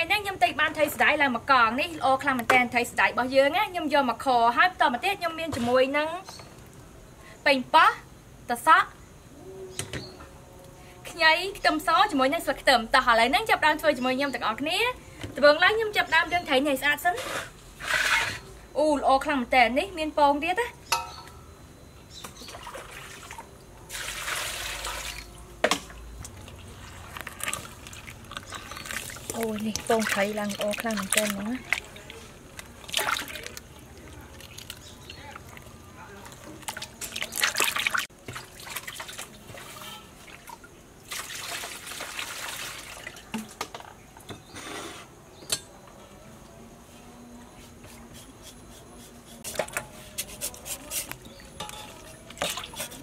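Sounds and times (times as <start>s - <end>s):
water splashing into basin: 22.5s - 43.9s
water sloshing and clatter: 26.3s - 43.9s, 51.6s - 53.0s.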